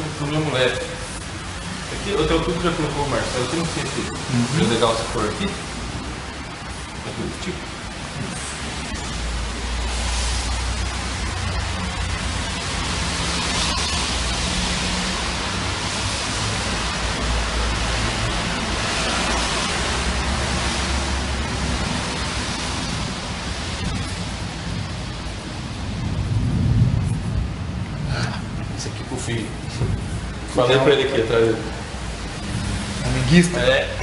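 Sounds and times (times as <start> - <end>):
steady hiss: 0.0 - 34.0
low rumble: 23.8 - 28.8.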